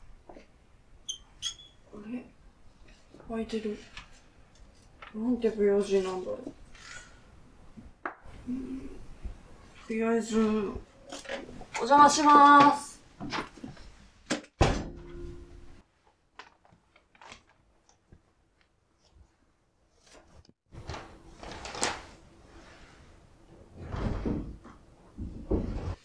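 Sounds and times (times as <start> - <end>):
heavy door thudding shut: 14.6 - 15.1.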